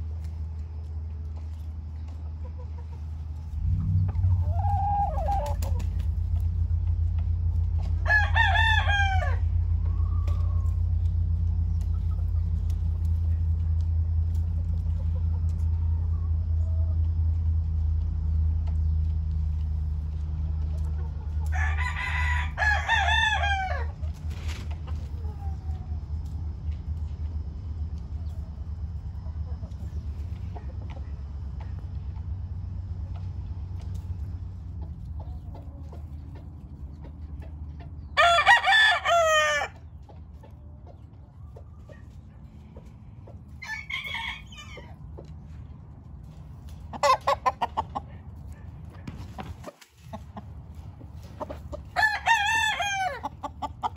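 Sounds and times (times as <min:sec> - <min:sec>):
steady low hum: 0:00.0 - 0:53.9
rooster clucking: 0:01.6 - 0:17.4, 0:18.3 - 0:53.9
rooster crowing: 0:03.7 - 0:05.8, 0:07.8 - 0:10.9, 0:21.4 - 0:24.0, 0:38.2 - 0:39.8, 0:43.6 - 0:45.0, 0:51.9 - 0:53.4.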